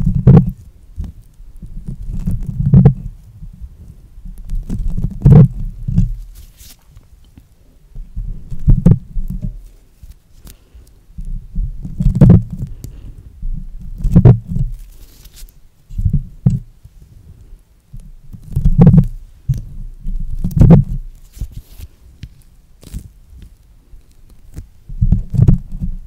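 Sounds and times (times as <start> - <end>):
faint crackling rustle: 0.0 - 26.0
stress ball squishy thuds: 13.8 - 14.8.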